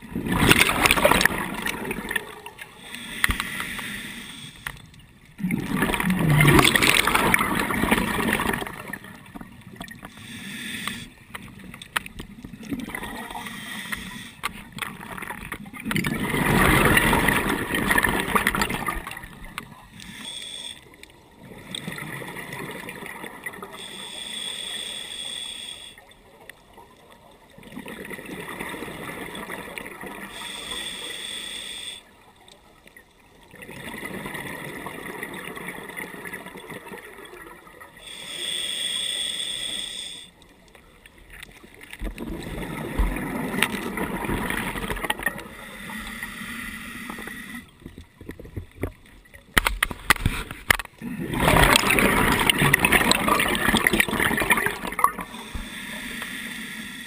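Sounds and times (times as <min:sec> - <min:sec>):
exhaled bubbles rushing: 0:00.0 - 0:02.6, 0:05.4 - 0:10.0, 0:14.8 - 0:19.6, 0:42.0 - 0:45.5, 0:51.0 - 0:55.3
regulator hiss with whistle: 0:38.1 - 0:40.3.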